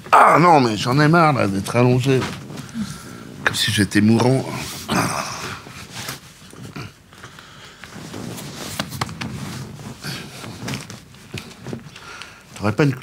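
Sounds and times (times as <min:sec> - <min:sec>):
clothing rustling: 0:00.0 - 0:13.0.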